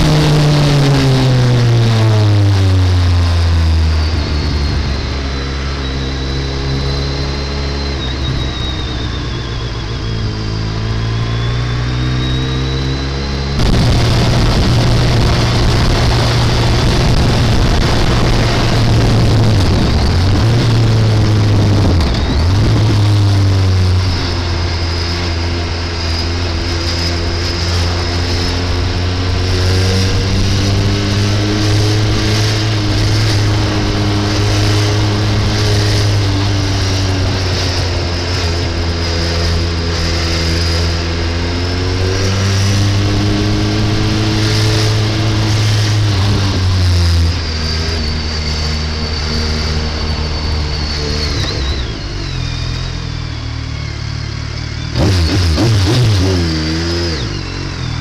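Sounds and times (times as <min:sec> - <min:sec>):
motorcycle engine revving: 0:00.0 - 0:58.0
wind rumble on microphone: 0:13.6 - 0:28.1.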